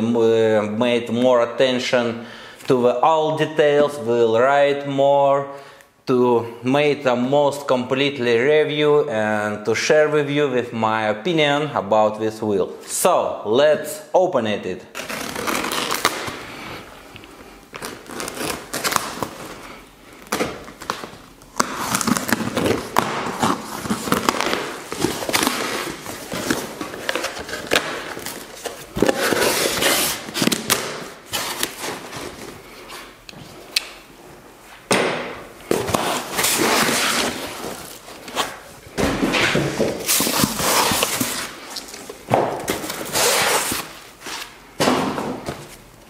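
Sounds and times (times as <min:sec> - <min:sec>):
cardboard and tape rustling: 0:17.7 - 0:33.7, 0:35.6 - 0:45.9.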